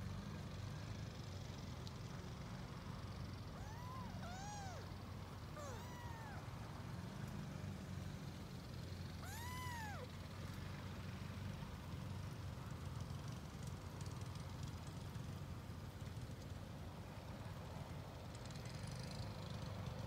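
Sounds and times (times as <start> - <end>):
kitten mewing: 3.5 - 6.6, 9.2 - 10.1.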